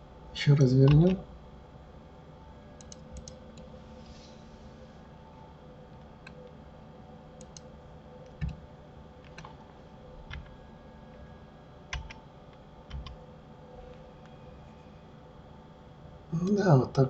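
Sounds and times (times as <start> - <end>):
faint steady hum: 0.0 - 17.0
computer mouse clicks: 2.8 - 3.7, 7.4 - 7.7, 9.2 - 9.6
keyboard key presses: 11.9 - 12.2.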